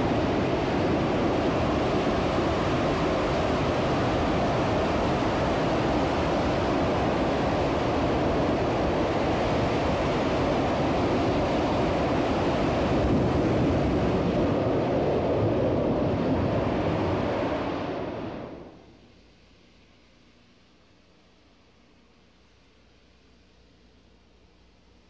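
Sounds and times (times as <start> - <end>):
distant rocket engine roar: 0.0 - 18.8.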